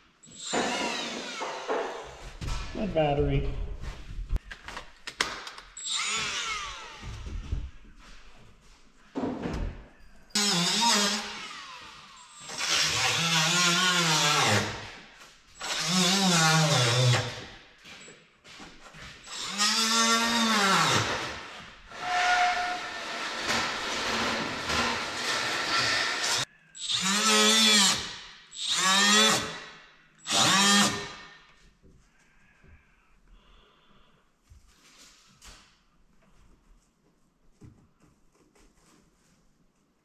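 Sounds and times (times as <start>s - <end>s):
power tool whining: 0.3s - 1.8s, 5.8s - 7.2s.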